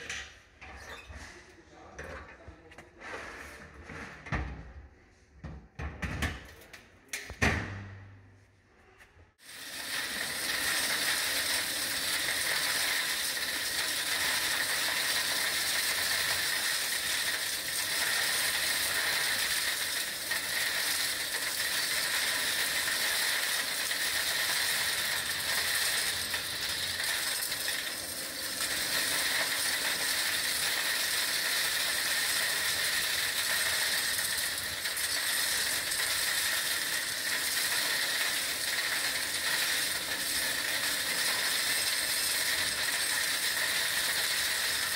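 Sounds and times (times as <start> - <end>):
vacuum cleaner running: 9.4 - 34.6
small stones clattering in hose: 9.4 - 44.9.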